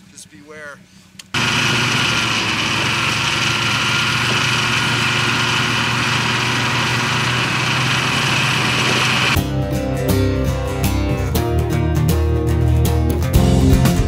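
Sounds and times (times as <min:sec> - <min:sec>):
snowmobile engine running: 0:01.4 - 0:09.4.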